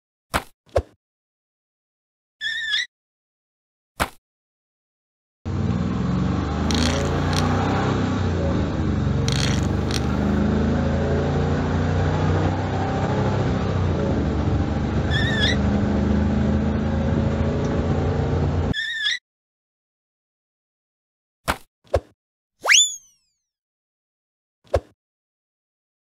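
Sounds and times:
car engine drone: 5.5s - 18.7s
sharp clicks: 6.7s - 7.7s, 9.2s - 10.2s
warbling electronic chirp: 22.7s - 23.4s.

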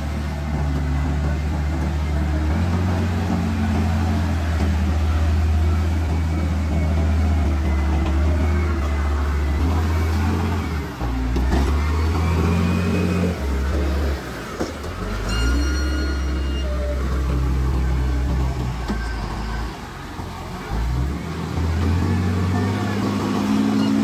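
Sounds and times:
diesel engine under load: 0.0s - 24.0s
steady high tone: 15.0s - 20.8s.

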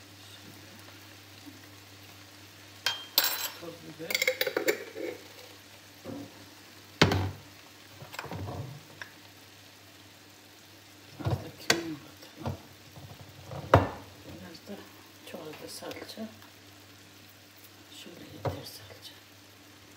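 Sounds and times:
food sizzling in a pan: 0.0s - 19.9s.

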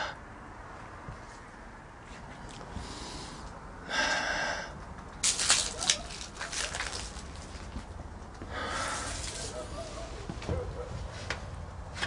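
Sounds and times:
breathy hiss: 8.5s - 9.5s.

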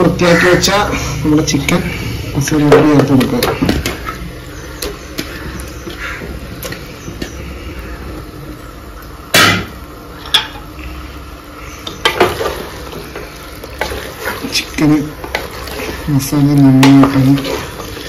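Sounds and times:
metal clanks against pot: 9.3s - 10.7s
spoon stirring and knocking pot: 11.8s - 13.2s, 15.2s - 18.0s.

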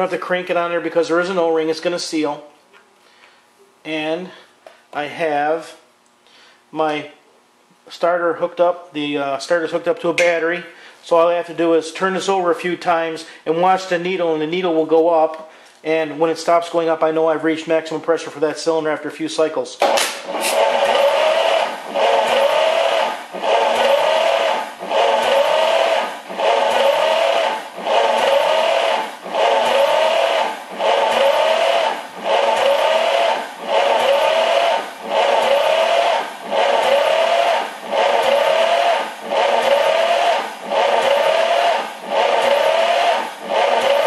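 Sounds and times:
starter motor cranking engine: 19.8s - 44.0s.

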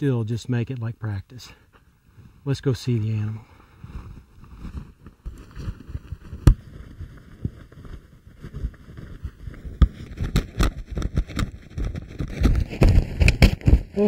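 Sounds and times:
footsteps on dry dirt: 3.4s - 10.1s.

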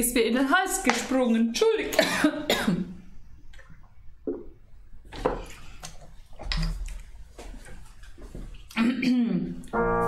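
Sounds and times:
woman clearing her throat: 2.0s - 3.0s, 8.8s - 9.6s.

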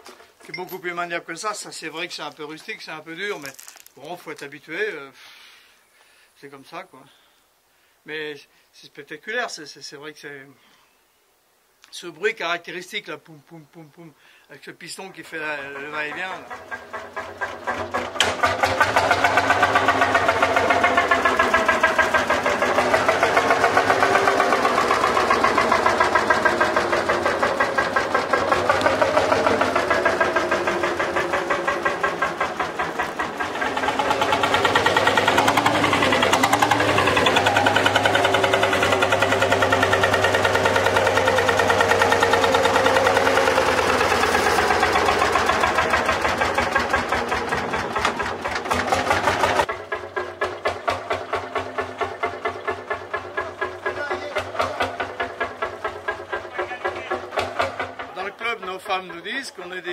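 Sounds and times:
tractor engine thumping beat: 15.8s - 58.4s.

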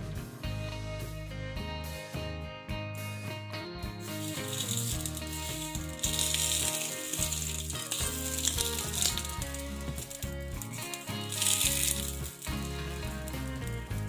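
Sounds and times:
background music: 0.0s - 14.0s
omelette sizzling in a frying pan: 4.0s - 14.0s.

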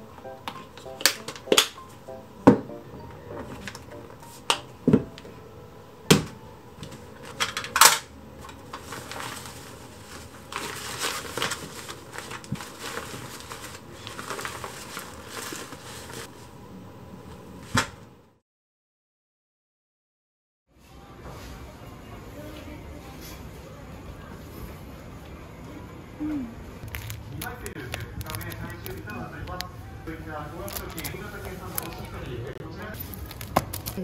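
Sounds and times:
fabric wrap rustling: 8.4s - 16.6s, 30.6s - 34.0s.

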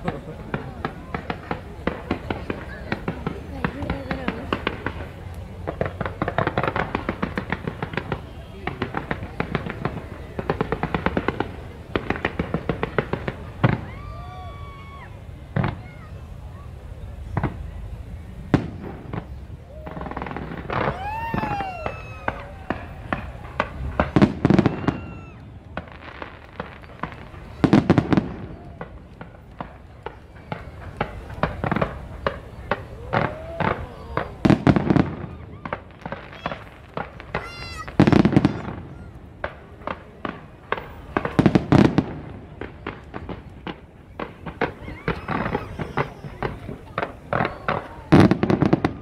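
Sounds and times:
fireworks cracking and popping: 0.0s - 49.0s
fireworks whistling down: 0.0s - 49.0s.

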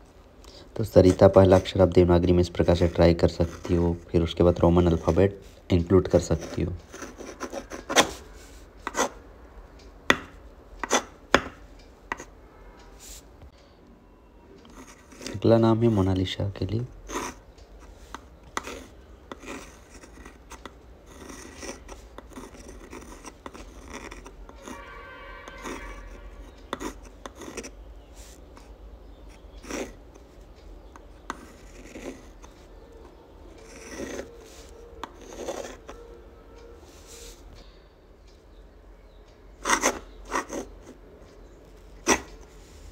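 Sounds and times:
pen scratching on paper: 0.8s - 5.4s, 6.0s - 9.2s, 10.2s - 11.5s, 14.7s - 16.1s, 17.1s - 30.4s, 31.0s - 36.0s, 39.6s - 41.0s, 42.0s - 42.6s
pen tapping on paper: 10.1s - 12.3s, 26.7s - 27.7s.

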